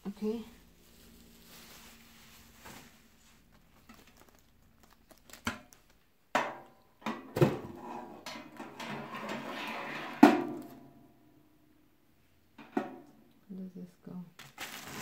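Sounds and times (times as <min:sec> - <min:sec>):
oven rack scraping: 0:07.8 - 0:10.7.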